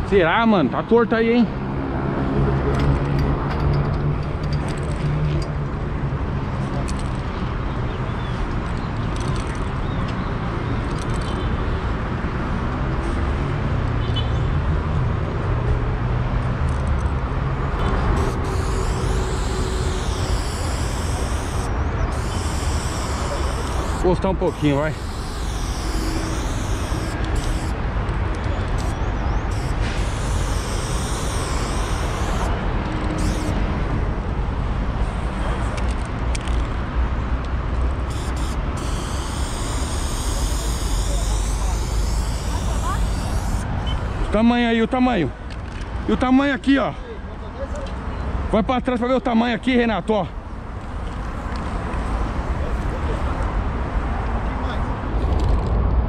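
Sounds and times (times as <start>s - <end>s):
city traffic rumble: 0.0s - 56.0s
spray paint can hissing: 18.1s - 27.8s, 28.7s - 33.6s, 38.0s - 43.9s.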